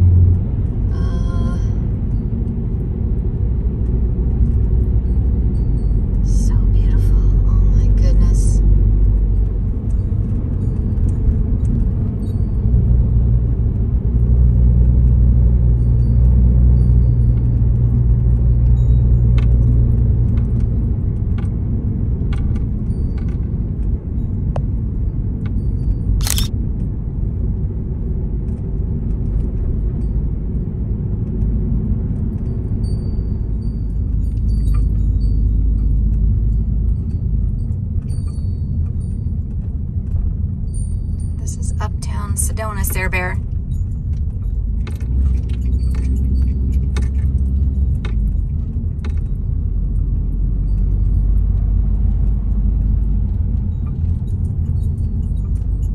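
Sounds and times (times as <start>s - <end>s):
road and engine rumble in vehicle: 0.0s - 55.9s
short sharp click: 26.2s - 26.5s.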